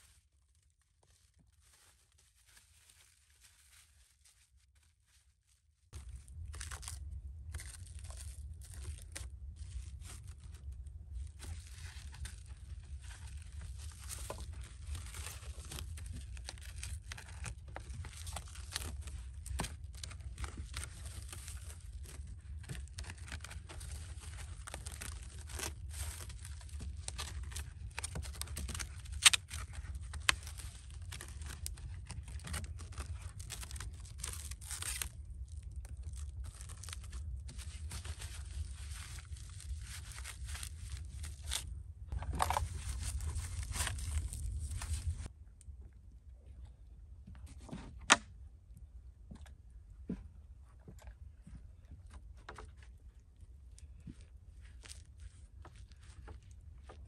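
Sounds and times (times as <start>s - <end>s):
crunching scraping and tearing: 0.0s - 5.2s, 5.9s - 45.3s, 52.1s - 57.0s
steady low rumble: 5.9s - 47.6s.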